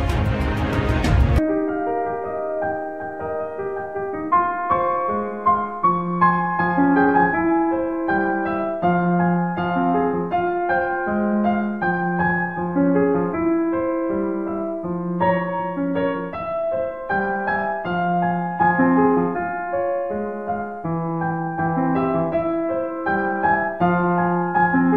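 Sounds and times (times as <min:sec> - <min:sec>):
piano music: 0:00.0 - 0:24.9.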